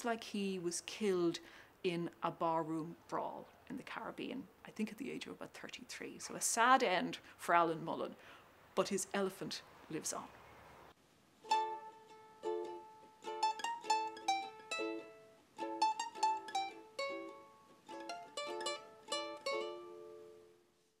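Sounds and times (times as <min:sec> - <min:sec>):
plucked-string music: 0:11.4 - 0:20.7.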